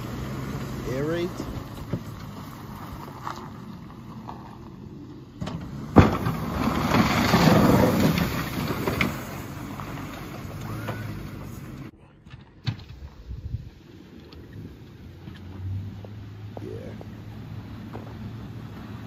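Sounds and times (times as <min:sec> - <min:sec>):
truck engine: 0:00.0 - 0:19.0
snow scraping off plow blade: 0:05.6 - 0:11.9.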